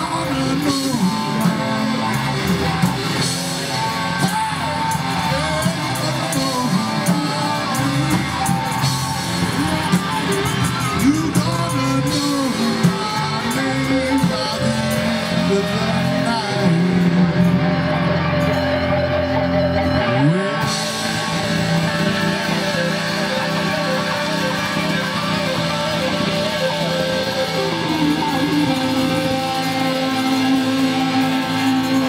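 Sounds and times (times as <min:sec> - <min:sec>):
live rock band playing: 0:00.0 - 0:32.0.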